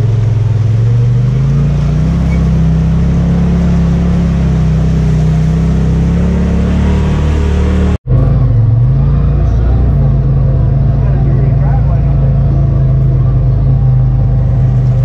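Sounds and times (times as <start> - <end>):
water splashing: 0.0 - 8.0
off-road vehicle engine revving: 0.0 - 15.0.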